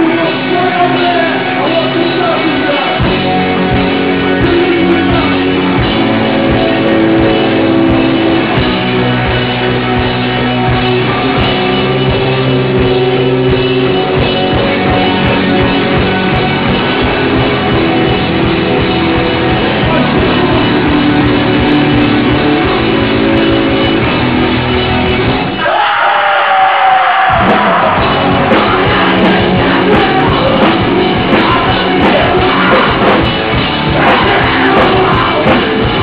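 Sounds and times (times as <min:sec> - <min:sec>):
punk band playing live: 0:00.0 - 0:36.0
shouted vocals: 0:25.6 - 0:33.2, 0:33.9 - 0:36.0.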